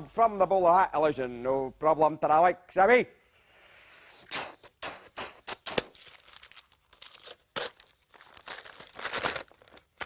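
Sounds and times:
paper rustling and crinkling: 5.8 - 10.0.

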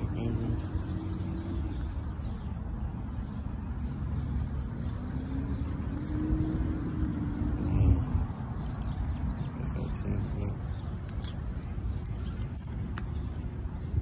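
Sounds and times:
vehicle engine rumbling: 0.0 - 14.0.

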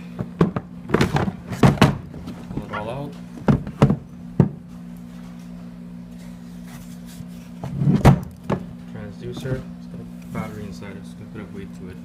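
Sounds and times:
hard plastic knocks and bumps: 0.2 - 2.7, 3.4 - 4.6.

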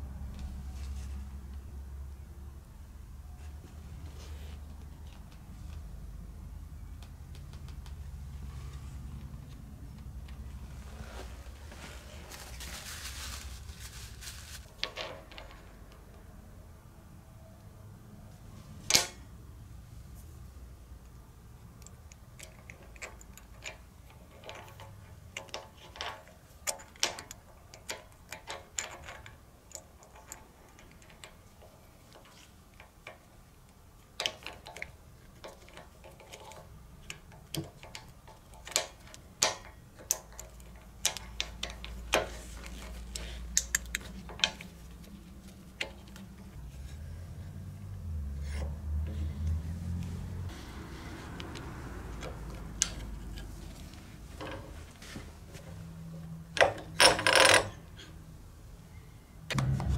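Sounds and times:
low hum: 58.9 - 59.9.

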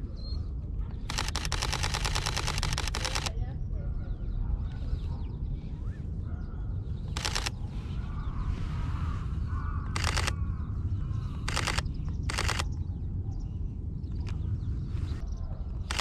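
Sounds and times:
steady low rumble: 0.0 - 16.0
camera shutter bursts: 1.1 - 3.3, 7.1 - 7.6, 9.9 - 10.4, 11.5 - 12.7
crows cawing: 9.0 - 11.2.

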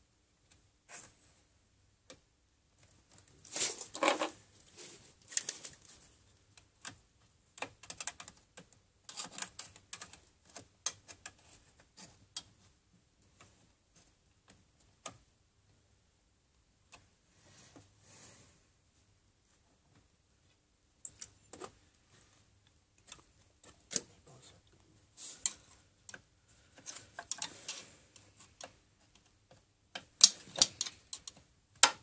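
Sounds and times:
scuffling scrape: 3.5 - 5.0.

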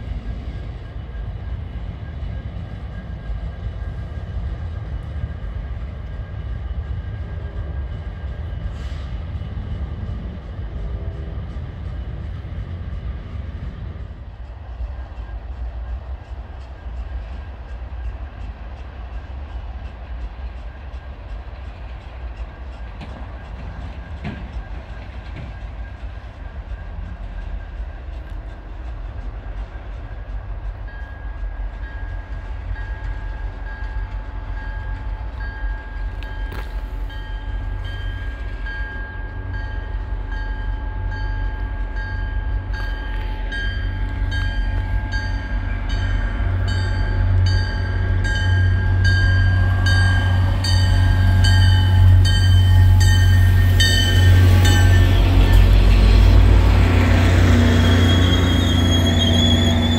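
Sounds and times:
diesel locomotive engine rumble: 0.0 - 59.9
locomotive bell ringing: 30.8 - 55.8.

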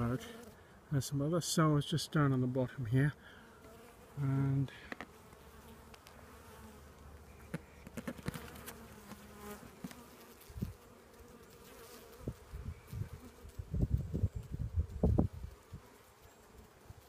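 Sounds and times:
bees buzzing: 3.2 - 17.0.

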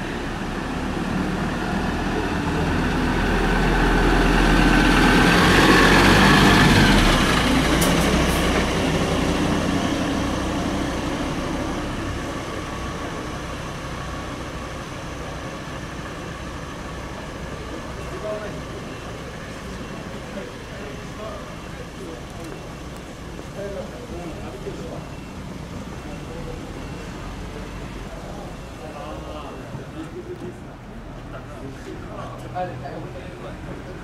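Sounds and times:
vehicle passing by: 0.0 - 12.5.

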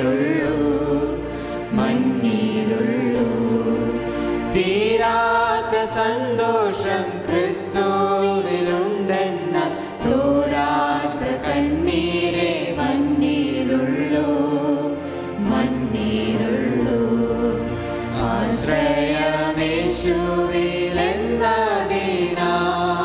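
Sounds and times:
group singing a hymn: 0.0 - 23.0.

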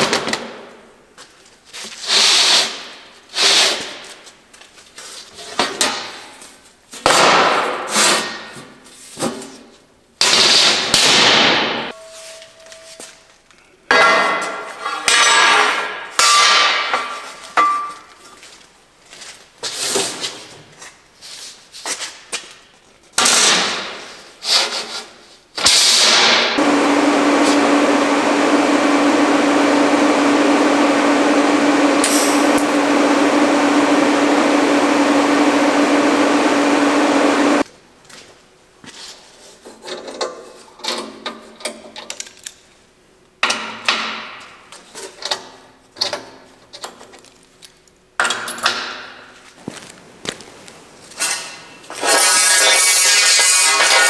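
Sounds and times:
steel parts clanking: 32.0 - 32.7.

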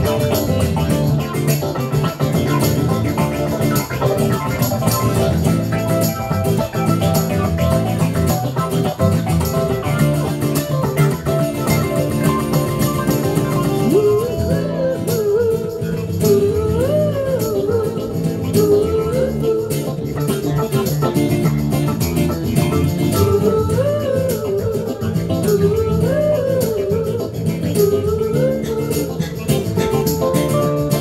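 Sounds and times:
lead melody bending: 0.0 - 15.0
electric guitar: 0.0 - 31.0
electric keyboard: 0.0 - 31.0
rattling percussion beat: 0.0 - 31.0.

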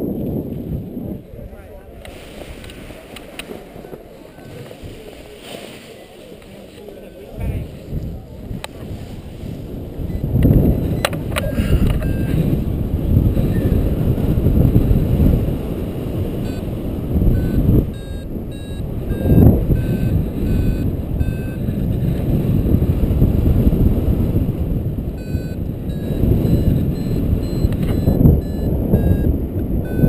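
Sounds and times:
wind rumble on microphone: 0.0 - 30.0
variometer beeping: 10.0 - 14.0, 16.3 - 22.8, 25.1 - 30.0.

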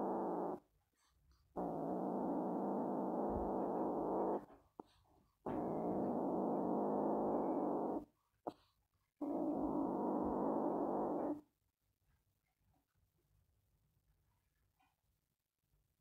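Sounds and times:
kitten growling: 0.0 - 0.7, 1.6 - 4.6, 5.5 - 8.1, 9.2 - 11.4.

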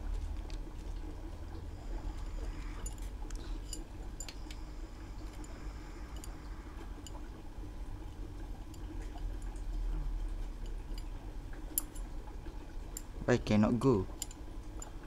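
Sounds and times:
light metallic clicks and taps: 14.2 - 14.9.

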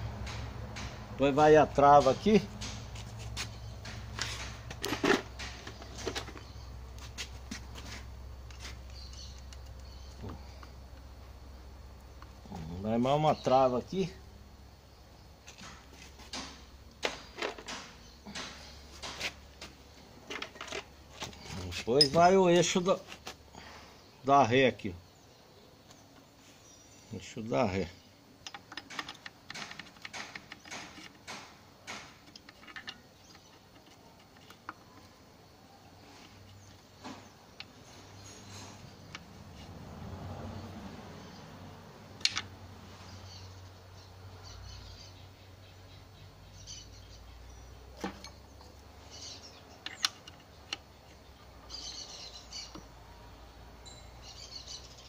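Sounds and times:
small birds chirping: 0.0 - 55.0
sharp metallic clicks and taps: 0.2 - 1.2, 1.9 - 6.4, 28.4 - 34.8.

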